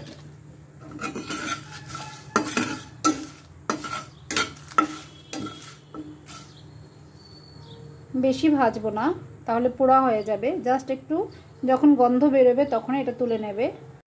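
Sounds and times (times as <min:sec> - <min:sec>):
metal spatula scraping spices in pan: 0:00.8 - 0:07.2.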